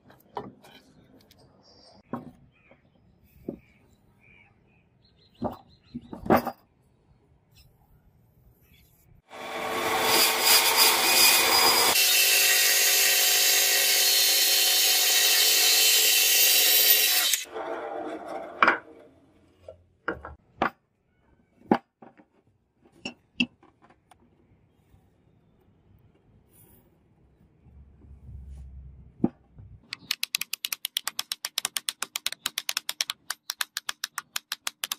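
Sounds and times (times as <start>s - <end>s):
band saw cutting wood: 9.3s - 18.9s.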